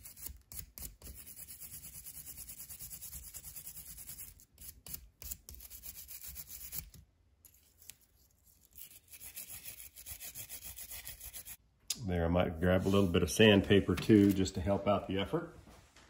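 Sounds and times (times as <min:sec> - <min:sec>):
wire brush scrubbing metal: 0:07.6 - 0:11.6.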